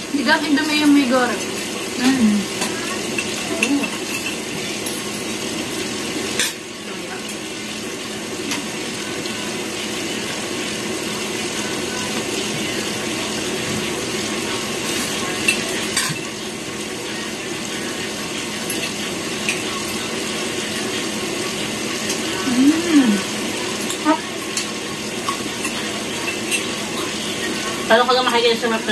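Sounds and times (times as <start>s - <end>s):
cutlery clinking on plates: 2.0s - 5.1s, 15.3s - 16.4s, 18.6s - 19.8s, 23.8s - 27.1s.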